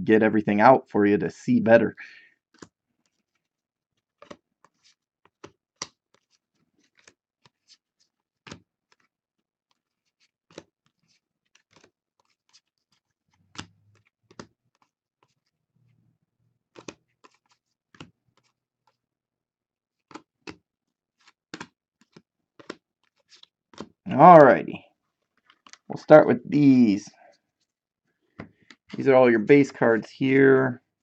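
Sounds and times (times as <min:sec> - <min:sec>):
cards flicking and tapping: 0:04.2 - 0:07.8, 0:09.7 - 0:12.7, 0:13.4 - 0:15.5, 0:16.7 - 0:18.6, 0:20.1 - 0:20.6, 0:21.2 - 0:24.0.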